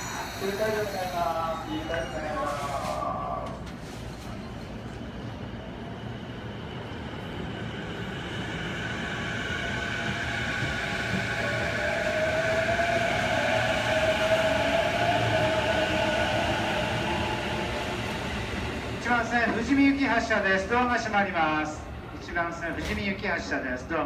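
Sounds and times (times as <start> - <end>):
electric train motor whine: 0.0 - 2.0.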